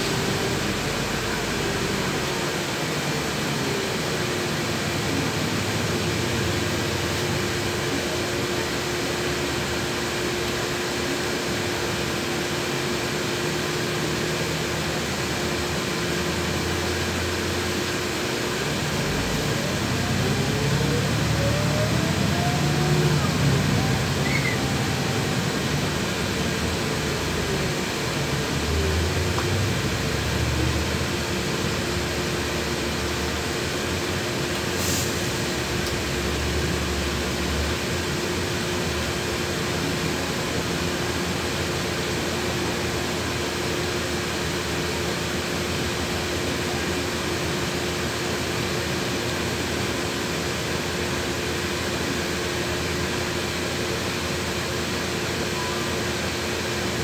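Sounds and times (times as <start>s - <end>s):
hiss of fans and engine: 0.0s - 57.0s
low rumble from driving: 14.0s - 43.3s.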